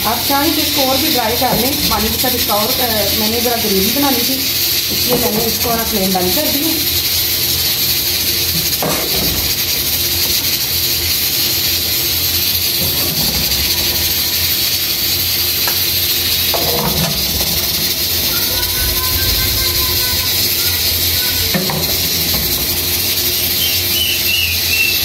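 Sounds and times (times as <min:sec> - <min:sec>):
steady hiss: 0:00.0 - 0:25.0
steel ladle knocking on pot: 0:08.6 - 0:09.6, 0:16.5 - 0:18.1.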